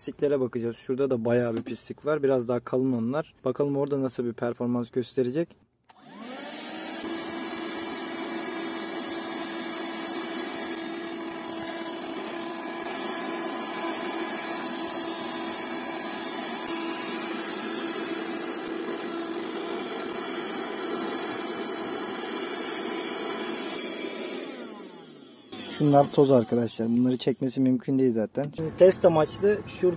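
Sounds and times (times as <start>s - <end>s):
handheld vacuum cleaner motor: 5.9s - 27.4s.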